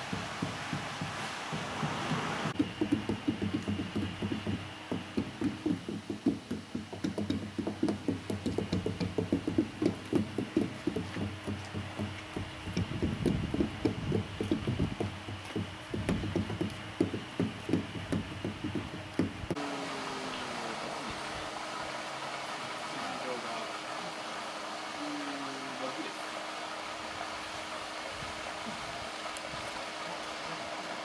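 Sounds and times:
hand tools knocking on tyres: 0.0s - 19.6s
low machine hum: 1.4s - 31.0s.

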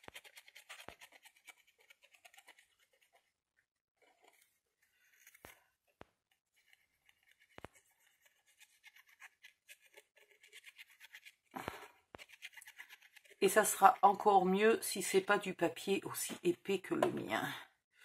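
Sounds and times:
glue bottle tip scratching paper: 0.0s - 3.3s, 6.3s - 11.5s, 12.2s - 14.2s
paper handling ticks: 6.2s - 13.4s.

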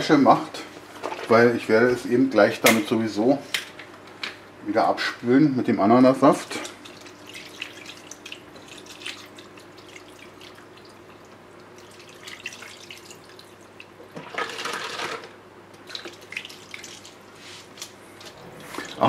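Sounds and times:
juice pouring into liquid: 6.7s - 15.2s.

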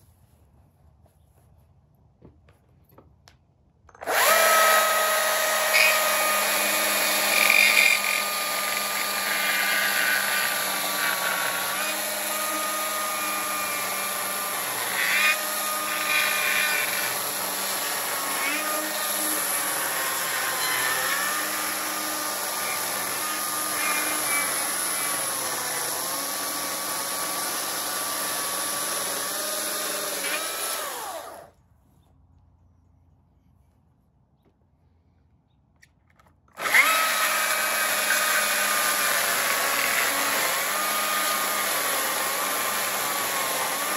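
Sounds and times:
battery chainsaw cutting log: 4.0s - 31.6s, 36.6s - 43.9s.

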